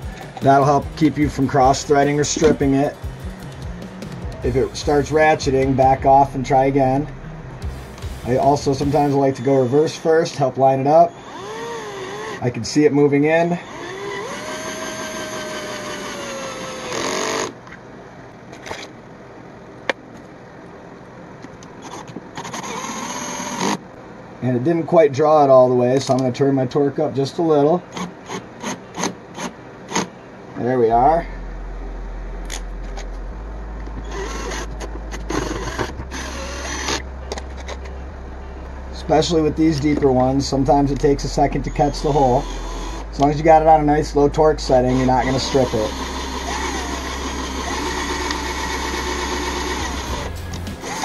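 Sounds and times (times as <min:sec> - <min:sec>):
drill clutch burst: 0:00.0 - 0:10.0, 0:11.1 - 0:12.5, 0:13.4 - 0:17.6, 0:21.9 - 0:23.9, 0:34.0 - 0:37.8, 0:41.7 - 0:51.0
cordless drill whining: 0:11.1 - 0:12.4, 0:13.6 - 0:17.6, 0:21.8 - 0:23.8, 0:34.0 - 0:37.0, 0:42.0 - 0:43.3, 0:44.8 - 0:51.0.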